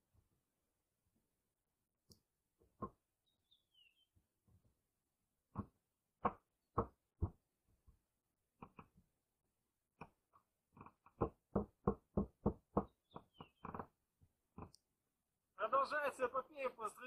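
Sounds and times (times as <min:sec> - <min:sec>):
faint bird chirp: 0:03.2 - 0:04.3, 0:12.8 - 0:14.0
dull wooden knocks: 0:05.5 - 0:08.0, 0:10.0 - 0:13.9.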